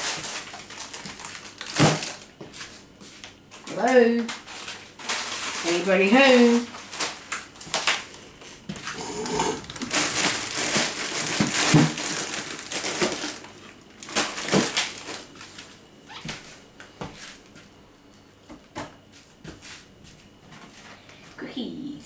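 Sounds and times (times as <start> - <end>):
plastic packets crinkling: 0.0 - 2.4, 3.2 - 8.2, 9.2 - 15.8
items knocking in a drawer: 9.8 - 12.2.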